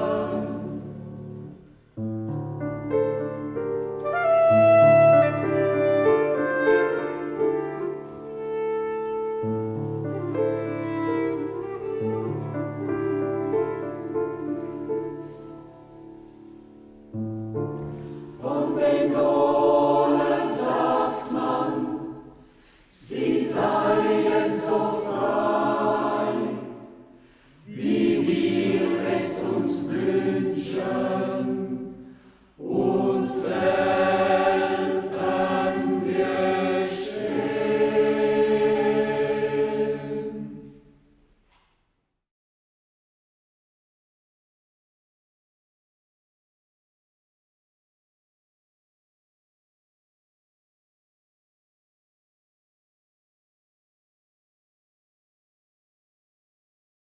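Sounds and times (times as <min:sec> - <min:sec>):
choir singing: 0:00.0 - 0:01.7, 0:18.3 - 0:41.1
clarinet low notes: 0:03.7 - 0:16.0.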